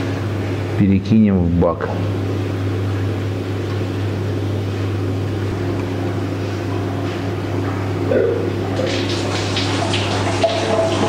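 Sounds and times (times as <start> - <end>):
electric pump humming: 0.0 - 11.0.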